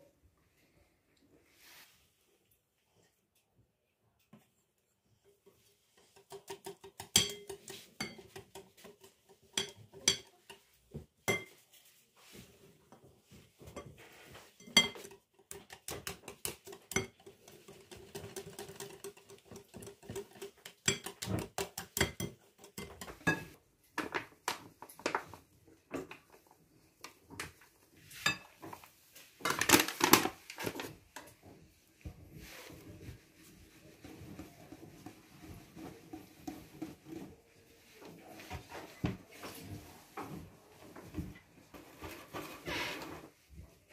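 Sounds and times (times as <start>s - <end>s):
whisk clinking against glass bowl: 6.1s - 11.6s, 14.6s - 23.6s.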